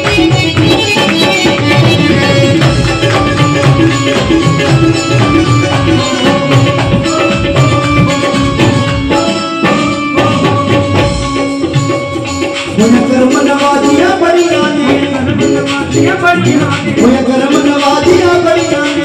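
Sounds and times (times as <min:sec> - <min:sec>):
people clapping along: 0:00.0 - 0:07.0
hand drum rhythm: 0:00.0 - 0:19.0
keyboard melody: 0:00.0 - 0:19.0.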